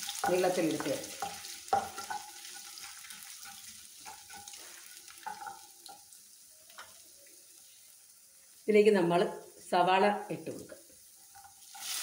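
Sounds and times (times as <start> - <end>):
spices sizzling in oil: 0.0 - 12.0
wooden spatula knocking against pan: 0.2 - 2.3.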